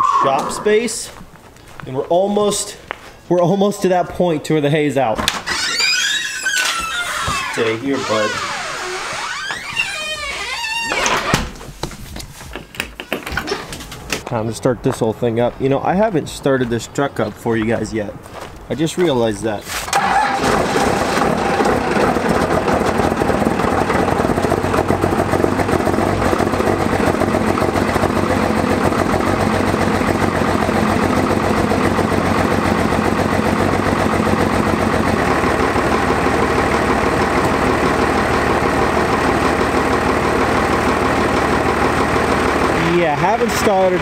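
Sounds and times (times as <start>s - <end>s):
diesel engine starting and idling: 19.9s - 44.0s.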